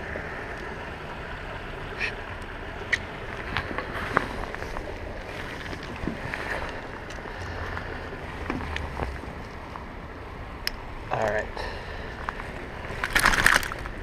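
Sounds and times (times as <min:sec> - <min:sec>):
water lapping: 0:00.0 - 0:14.0
fish splashing at surface: 0:12.9 - 0:13.9.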